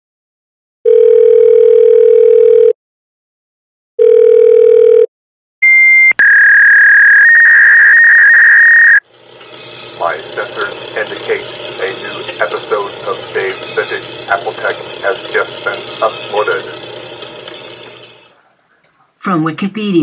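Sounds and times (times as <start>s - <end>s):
dial tone: 0.8s - 2.8s, 4.0s - 9.0s.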